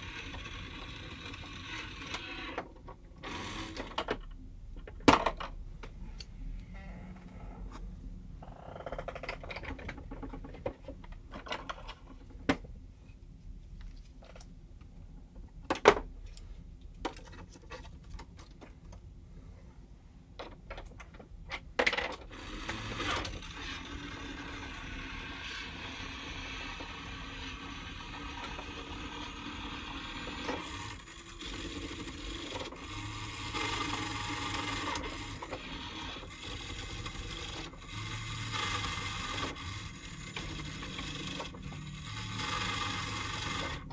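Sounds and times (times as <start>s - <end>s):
small motor humming: 22.3s - 43.9s.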